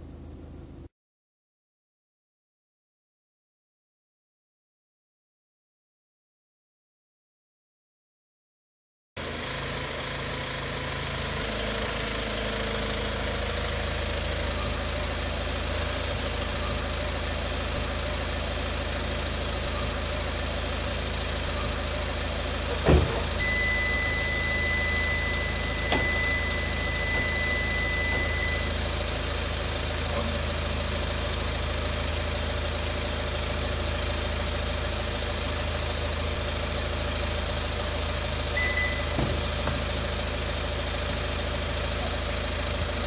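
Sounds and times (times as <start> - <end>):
car engine idling: 9.2 - 43.0
loud thump: 22.8 - 23.4, 39.1 - 39.9
steady high beep: 23.4 - 28.8, 38.6 - 39.2.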